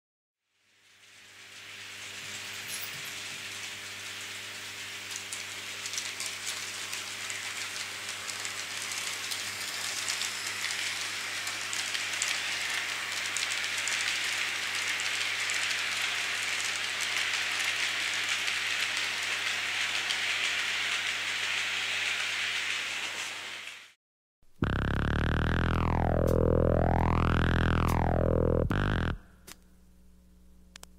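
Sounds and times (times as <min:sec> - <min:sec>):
model train wheels on rails: 0:00.6 - 0:24.0.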